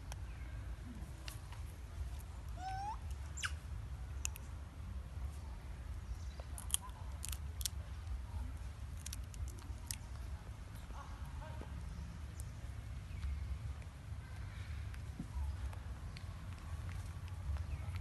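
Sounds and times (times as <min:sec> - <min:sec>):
steady low rumble: 0:00.0 - 0:18.0
monkey squeaking: 0:02.6 - 0:03.6.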